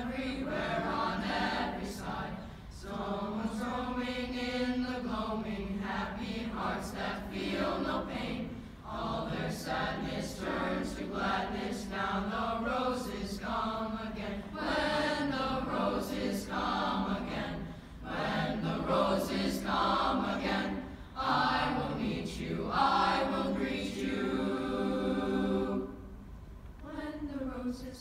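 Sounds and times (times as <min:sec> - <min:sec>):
boys' chorus singing: 0:00.0 - 0:26.0.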